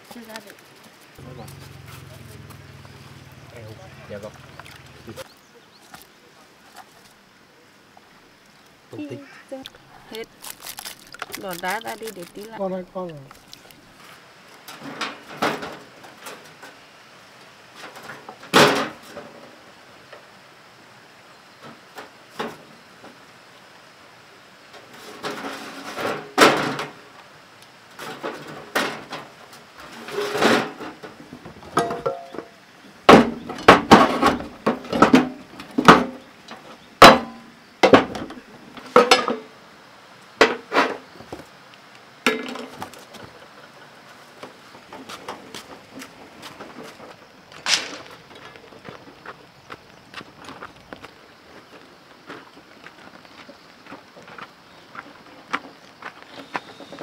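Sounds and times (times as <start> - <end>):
tools clanking into metal wheelbarrow: 31.7 - 32.5, 33.1 - 39.5.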